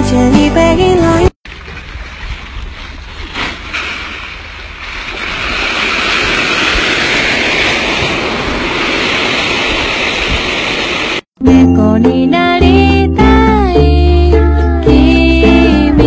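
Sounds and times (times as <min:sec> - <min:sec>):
water splashing in a pool: 0:01.4 - 0:11.3.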